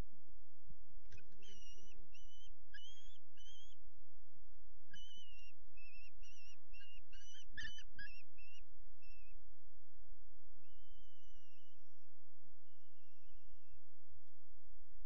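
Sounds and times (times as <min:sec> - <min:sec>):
young kestrels calling: 0:01.1 - 0:03.8, 0:04.9 - 0:09.4, 0:10.6 - 0:13.8.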